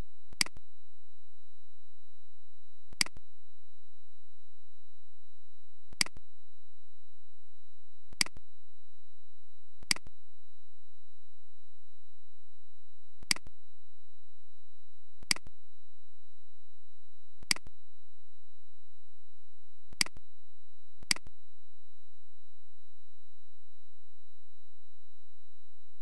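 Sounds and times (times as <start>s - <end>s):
computer mouse clicks: 0.4s - 0.6s, 3.0s - 3.2s, 6.0s - 6.2s, 8.2s - 8.4s, 9.8s - 10.1s, 17.4s - 17.7s, 20.0s - 20.2s, 21.0s - 21.3s.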